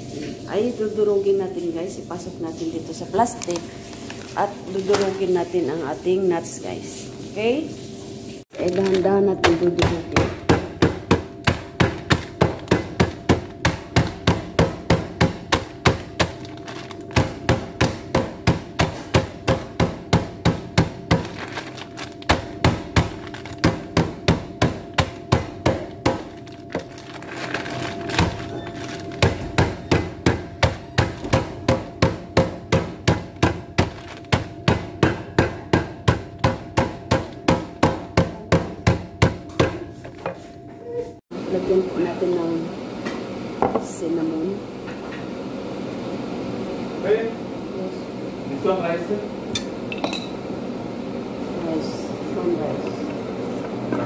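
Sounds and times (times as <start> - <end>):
mallet pounding nuts in plastic bag: 8.5 - 39.9.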